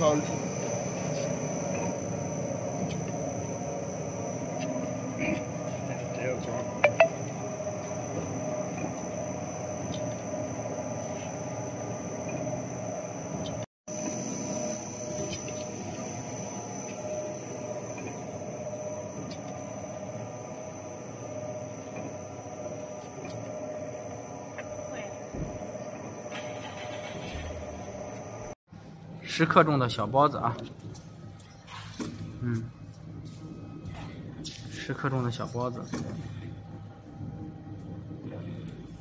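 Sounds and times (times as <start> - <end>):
high machine whine: 0.0 - 30.0.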